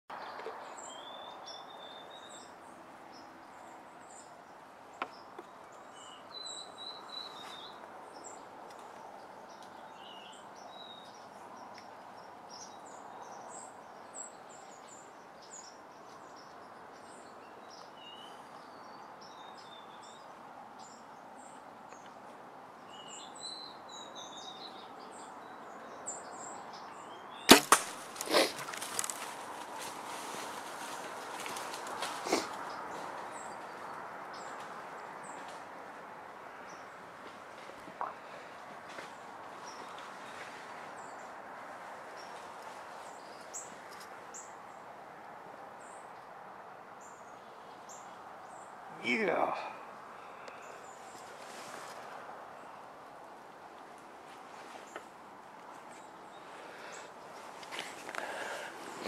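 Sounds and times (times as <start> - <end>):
small birds chirping: 0.1 - 44.9, 47.0 - 53.1, 53.9 - 59.0
bow shot double crack: 27.5 - 28.6.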